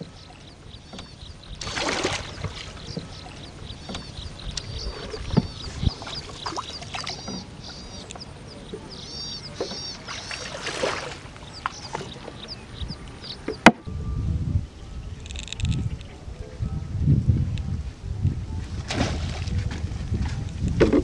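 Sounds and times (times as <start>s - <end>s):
small birds chirping: 0.0s - 13.8s
boat moving through water: 0.0s - 13.9s, 17.6s - 21.0s
knocks on a boat: 3.7s - 4.2s.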